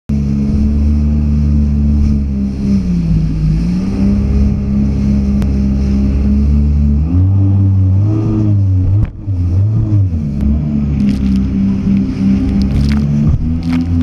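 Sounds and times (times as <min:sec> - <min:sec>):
jet ski engine revving high: 0:00.1 - 0:14.0.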